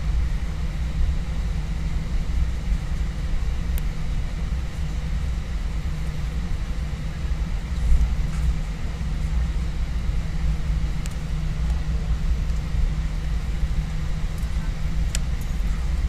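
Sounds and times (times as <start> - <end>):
airplane cabin low rumble: 0.0 - 16.0.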